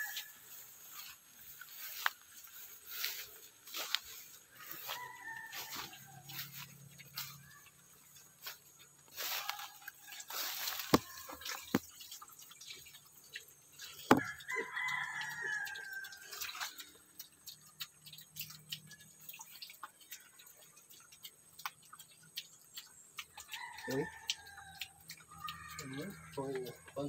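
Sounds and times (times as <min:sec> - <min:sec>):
rooster crowing: 0:00.0 - 0:00.5, 0:03.8 - 0:07.7, 0:09.2 - 0:11.5, 0:14.1 - 0:16.4, 0:23.4 - 0:26.8.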